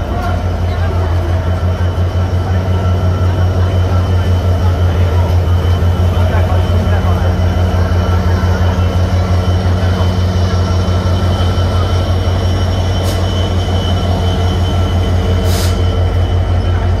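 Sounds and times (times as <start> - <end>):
train engine humming: 0.0 - 17.0
short hisses: 15.4 - 15.9.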